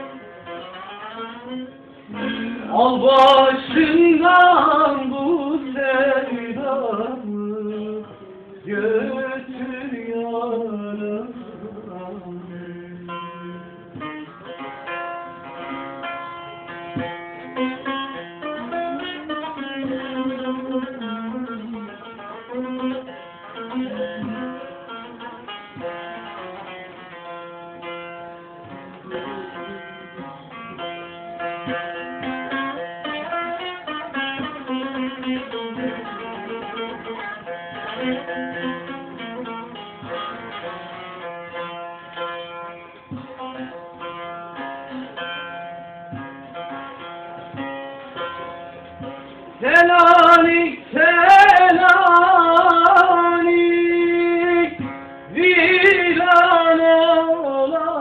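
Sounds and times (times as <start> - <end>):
plucked string instrument melody: 0.0 - 58.0
person singing loudly: 2.1 - 13.7.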